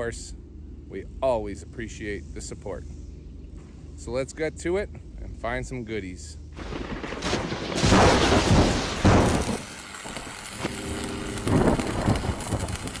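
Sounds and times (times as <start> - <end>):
deep booming hits: 6.6 - 9.7.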